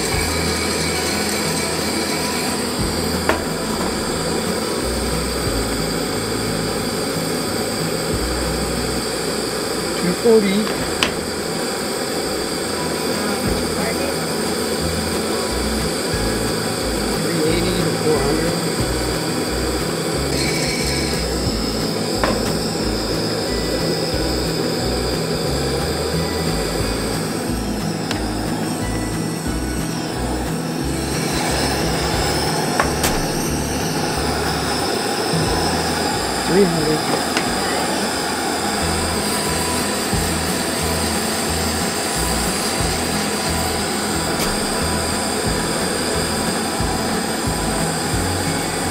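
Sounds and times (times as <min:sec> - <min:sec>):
gas burner hissing: 0:00.0 - 0:48.9
low background music: 0:00.0 - 0:48.9.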